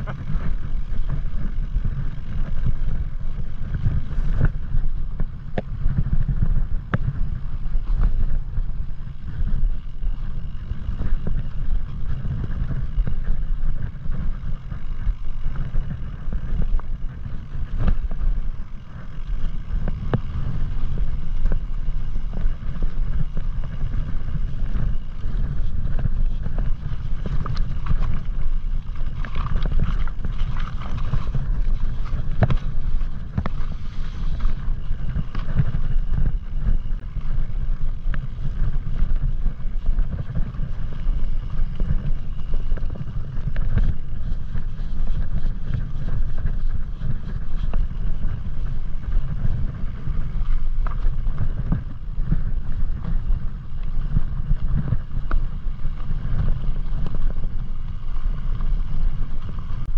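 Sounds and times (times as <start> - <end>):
bike rolling over stony trail: 0.0 - 59.9
clicks and rattles from bike: 0.0 - 59.9
wind buffeting microphone: 0.0 - 59.9.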